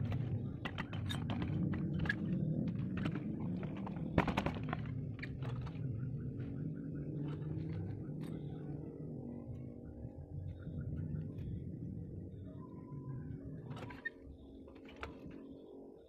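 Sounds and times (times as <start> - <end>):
low hum: 0.0 - 16.0.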